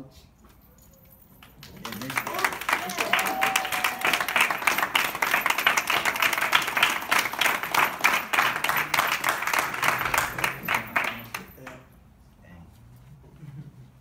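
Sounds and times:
people applauding: 1.4s - 11.8s.

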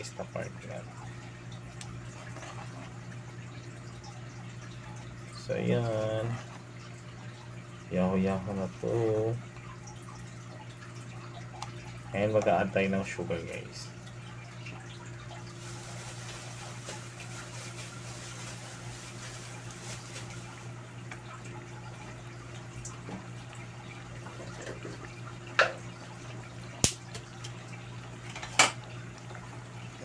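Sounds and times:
thick porridge simmering in a pot: 0.4s - 3.6s.

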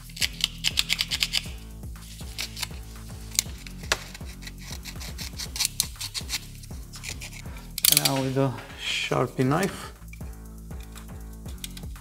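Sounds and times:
background music: 0.0s - 12.0s
knife scraping plastic: 2.2s - 8.2s.

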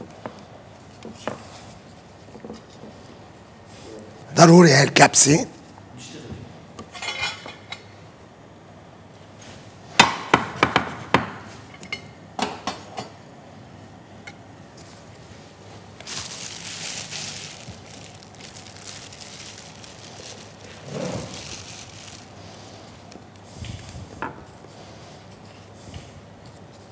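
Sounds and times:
rustle of breadcrumbs: 14.8s - 26.9s.

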